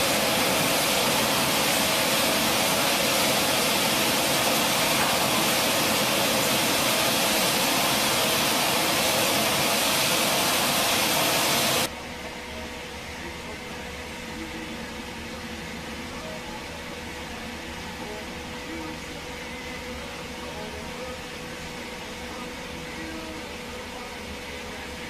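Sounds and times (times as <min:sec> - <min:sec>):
grain unloader machine hiss: 0:00.0 - 0:11.9.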